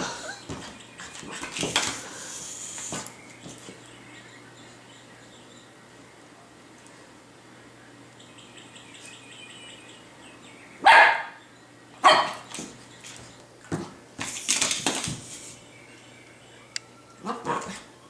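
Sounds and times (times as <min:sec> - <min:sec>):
puppy barking: 0:10.8 - 0:11.4, 0:12.0 - 0:12.5, 0:17.2 - 0:17.9.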